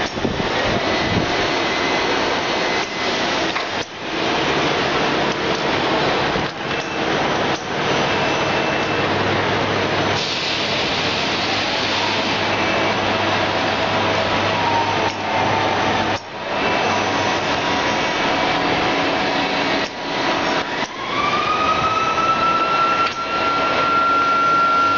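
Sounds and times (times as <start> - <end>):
faint machine whines: 0.8 - 4.0, 6.6 - 9.2, 10.7 - 24.9
machine shop hiss: 10.1 - 12.7.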